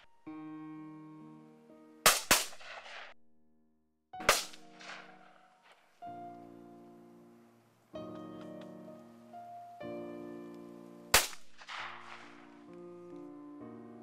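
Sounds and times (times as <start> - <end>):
background music of held chords: 0.0 - 2.8, 4.2 - 14.0
shotgun shots echoing: 2.0 - 3.1, 4.2 - 5.5, 11.1 - 12.6.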